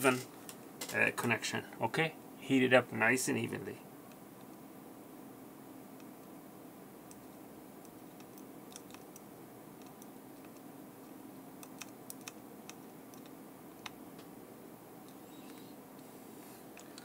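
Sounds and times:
faint steady hum: 0:00.0 - 0:17.0
solder ticks and crackles: 0:05.9 - 0:06.4, 0:07.0 - 0:14.4.

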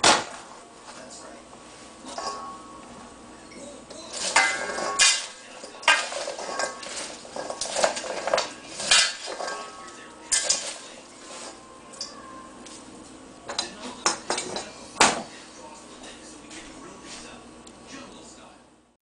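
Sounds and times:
dishes and utensils clinking: 0:02.0 - 0:16.2.

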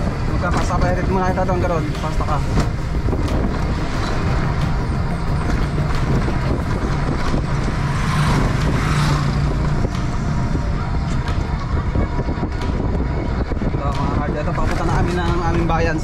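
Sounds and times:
road and wind noise: 0:00.0 - 0:16.0
motorcycle engine passing: 0:03.7 - 0:11.6.

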